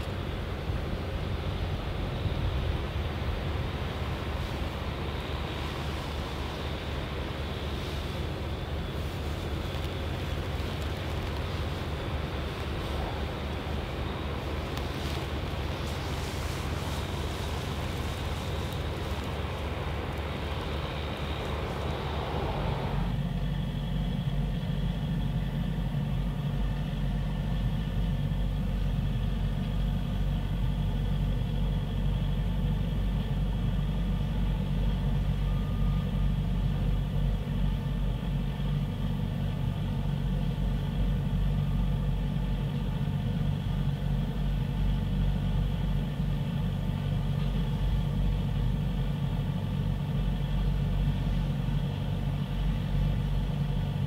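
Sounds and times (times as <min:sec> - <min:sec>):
large engine idling: 0:00.0 - 0:54.0.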